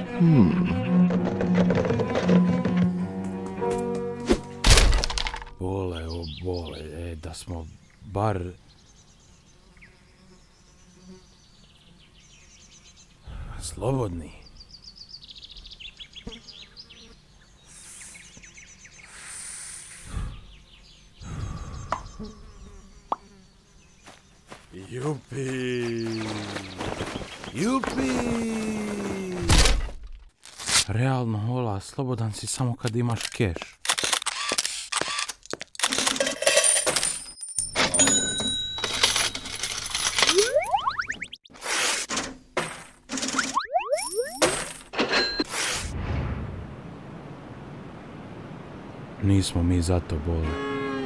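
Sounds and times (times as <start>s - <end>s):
birds chirping and trilling: 5.6s - 29.3s
meadow ambience: 5.6s - 29.8s
hiss: 17.7s - 18.3s, 19.0s - 20.3s
cartoon coins clinking: 36.0s - 41.0s, 43.2s - 45.5s.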